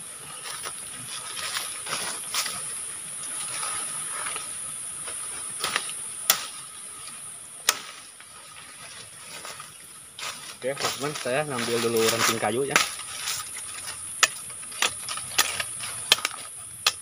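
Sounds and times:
leaves and twigs rustling: 0.0s - 17.0s
steady high hiss: 0.0s - 17.0s
machete cutting branch: 5.6s - 8.0s, 10.8s - 17.0s
wood snapping cracks: 7.6s - 8.0s, 11.9s - 17.0s.

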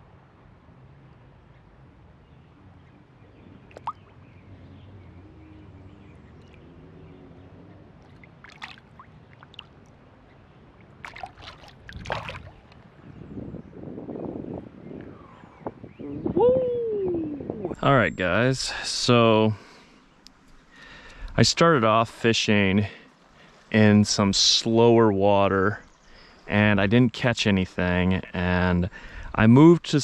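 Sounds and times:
water splashes and drips: 3.7s - 4.2s, 6.4s - 6.7s, 8.0s - 10.0s, 10.7s - 12.8s.

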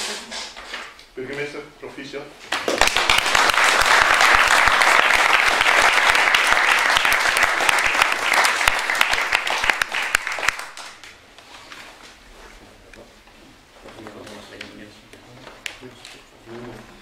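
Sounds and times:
crowd applauding: 2.6s - 11.2s.

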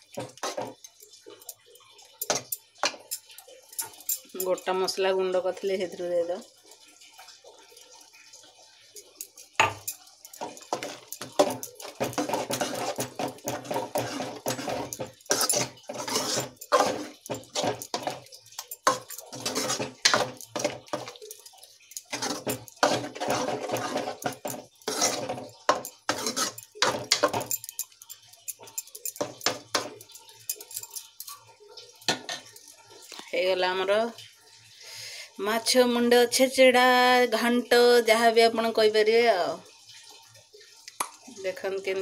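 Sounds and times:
ladle scraping metal pan: 0.2s - 0.8s, 9.6s - 31.4s
metal clinks: 0.2s - 4.7s, 9.0s - 31.5s.

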